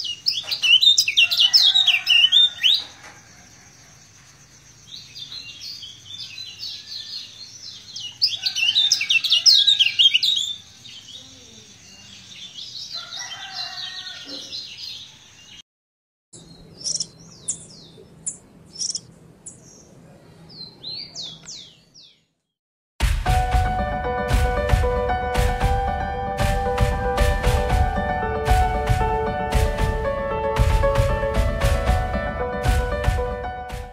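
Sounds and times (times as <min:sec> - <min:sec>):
songbird twittering song: 0:00.0 - 0:15.6, 0:16.4 - 0:22.5.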